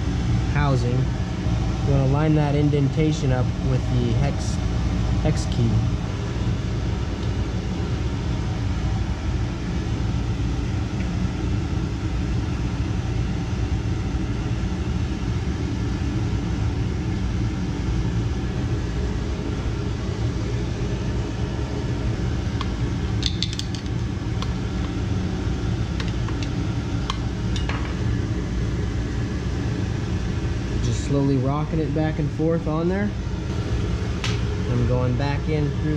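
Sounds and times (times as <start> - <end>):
machinery hum and rumble: 0.0 - 35.9.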